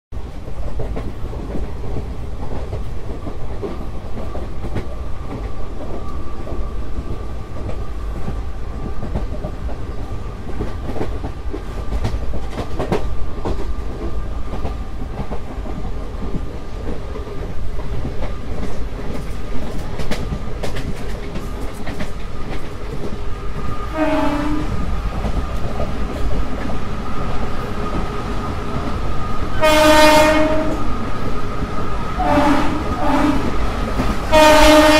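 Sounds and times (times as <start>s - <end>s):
wheels rumbling on track: 0.1s - 34.9s
train horn blast: 23.9s - 24.8s, 29.5s - 31.0s, 32.2s - 33.6s, 34.3s - 34.9s.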